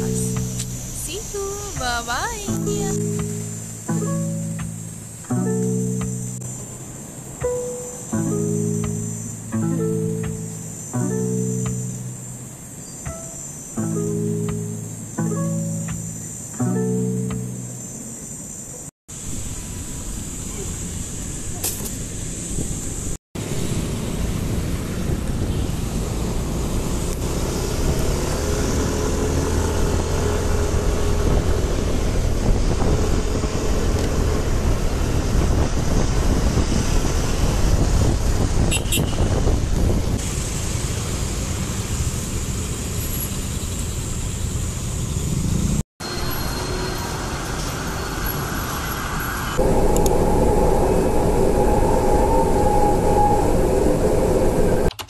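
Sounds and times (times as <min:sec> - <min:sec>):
surrounding cars: 0:00.0 - 0:55.0
wind on microphone: 0:29.6 - 0:40.4, 0:49.6 - 0:54.9
metro train hum: 0:46.0 - 0:54.9.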